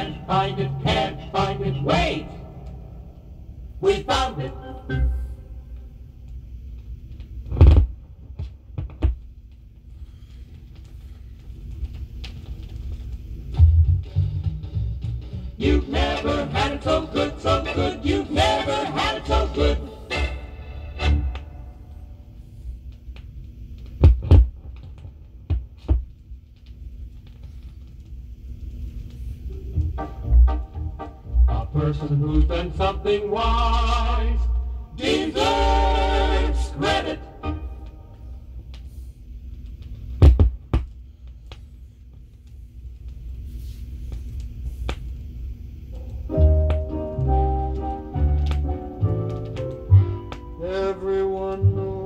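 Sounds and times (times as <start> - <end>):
record surface noise rumble: 0.0 - 52.0
record thump: 7.5 - 9.2, 24.0 - 24.7, 40.2 - 40.9.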